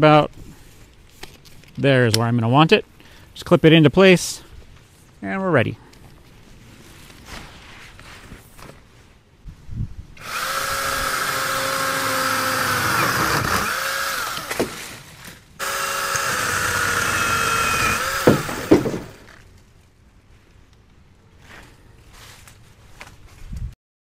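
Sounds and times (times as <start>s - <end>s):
electric chainsaw whining: 10.2s - 14.8s, 15.6s - 19.4s
branches cracking: 10.2s - 21.0s.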